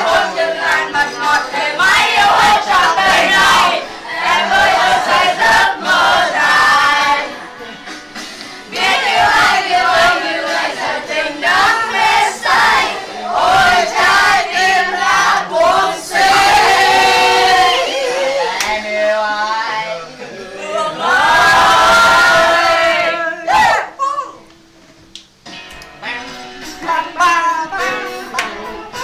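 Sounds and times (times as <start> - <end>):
group singing and chanting: 0.0 - 7.8, 8.5 - 24.0, 26.7 - 29.0
hand claps: 28.3 - 29.0.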